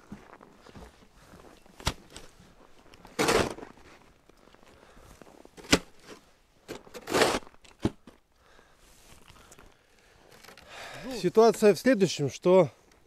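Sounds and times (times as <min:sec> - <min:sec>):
plastic shovel scraping snow: 0:03.1 - 0:03.8, 0:07.0 - 0:07.6.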